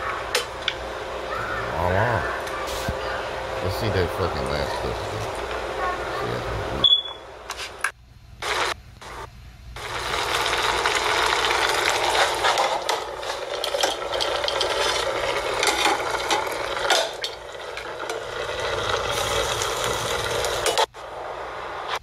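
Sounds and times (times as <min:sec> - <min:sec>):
food sizzling in a pan: 0:09.8 - 0:20.9.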